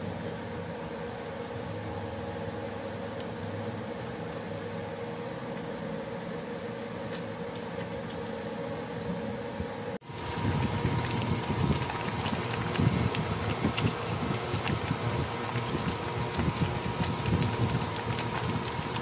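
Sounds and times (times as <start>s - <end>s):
steady mechanical hum: 0.0s - 19.0s
soup bubbling at a rolling boil: 10.0s - 19.0s.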